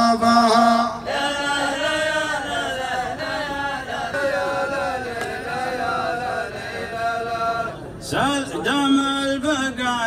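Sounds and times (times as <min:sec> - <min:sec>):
men chanting together: 0:00.6 - 0:07.8.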